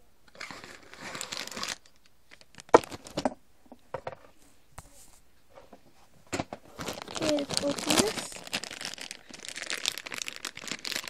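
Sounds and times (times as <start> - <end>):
packaging rustle: 0.3 - 3.2, 6.6 - 11.0.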